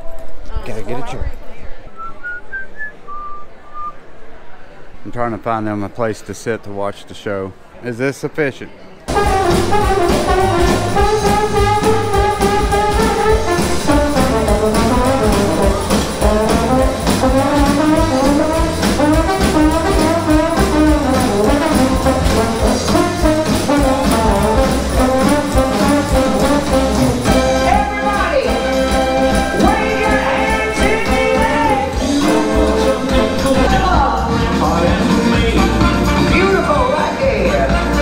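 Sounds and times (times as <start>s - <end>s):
jazz brass music: 9.1s - 38.0s.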